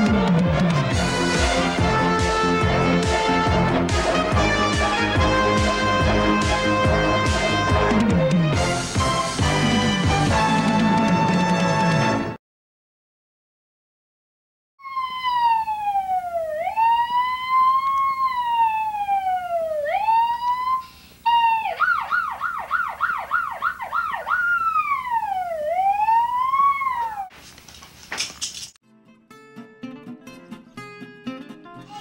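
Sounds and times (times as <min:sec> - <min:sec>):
boy imitating police siren: 0:14.8 - 0:27.3.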